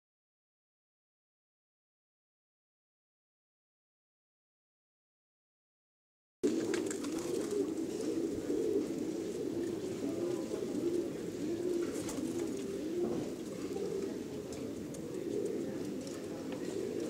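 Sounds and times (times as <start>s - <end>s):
pigeons cooing: 6.4s - 17.0s.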